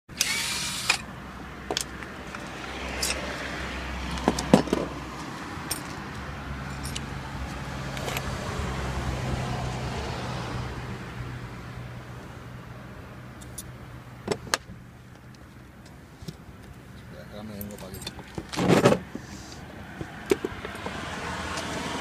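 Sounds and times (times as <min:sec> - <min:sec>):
cordless drill whirring: 0:00.1 - 0:01.1.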